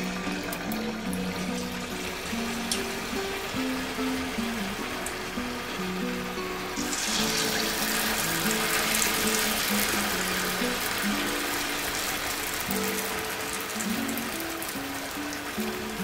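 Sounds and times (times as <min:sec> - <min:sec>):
background music simple melody: 0:00.0 - 0:16.0
hot oil sizzling: 0:00.0 - 0:16.0.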